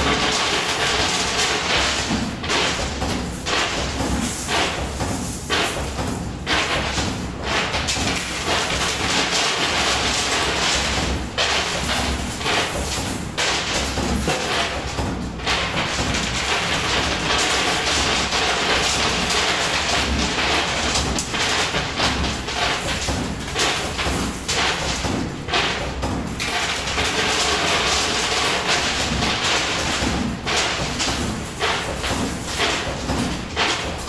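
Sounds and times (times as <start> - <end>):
coins clinking and thudding: 0.1 - 7.0, 8.0 - 14.9, 15.5 - 25.0, 26.4 - 34.0.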